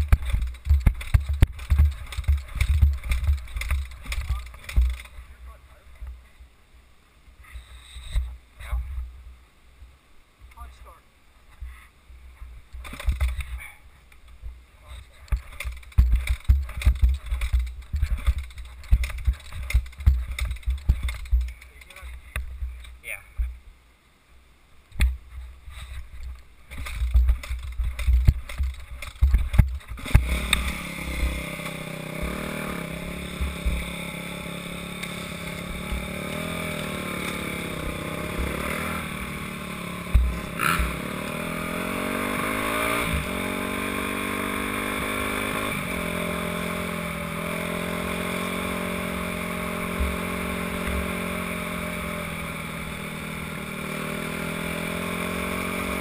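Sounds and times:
thumps on microphone: 0.0s - 5.1s, 12.8s - 13.6s, 15.2s - 22.8s, 25.9s - 30.3s, 40.1s - 40.9s
dirt bike engine revving: 0.0s - 5.4s, 14.9s - 22.2s, 26.7s - 56.0s.

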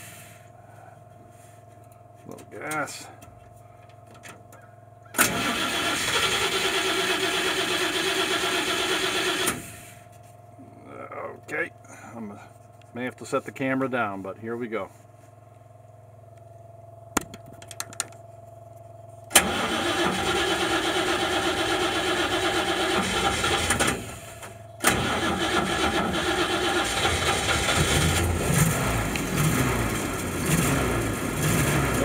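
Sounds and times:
fuel pump humming: 0.0s - 32.0s
engine starting and running: 5.1s - 10.1s, 19.3s - 32.0s.

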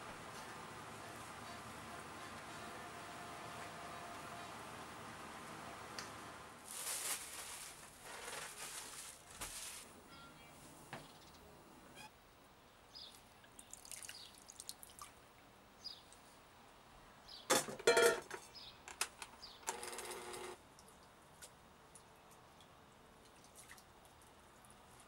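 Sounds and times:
water dripping: 13.1s - 15.2s.

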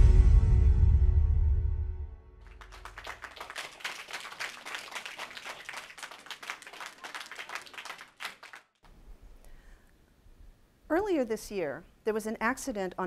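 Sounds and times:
audience applauding: 2.4s - 8.8s.

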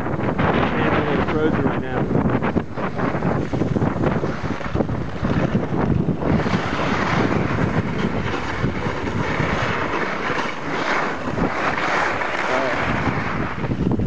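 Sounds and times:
skis scraping over hard snow: 0.0s - 14.0s
wind buffeting microphone: 0.0s - 14.0s.

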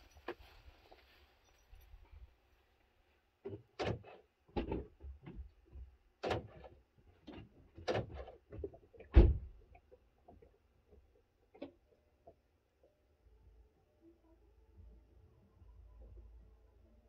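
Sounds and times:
car door knocks and clunks: 7.8s - 9.6s
car door shutting thump: 9.2s - 9.5s.

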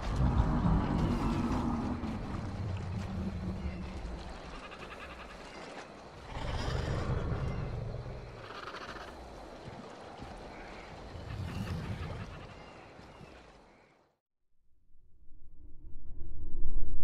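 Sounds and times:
low rumbling ambience: 0.0s - 4.7s, 14.7s - 17.0s
animal calls: 0.3s - 9.2s, 10.4s - 13.4s.

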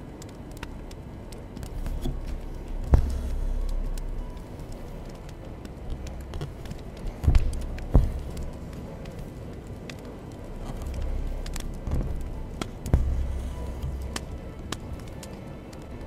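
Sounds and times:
sharp thumps: 1.8s - 4.2s, 5.8s - 8.8s, 10.5s - 15.0s.

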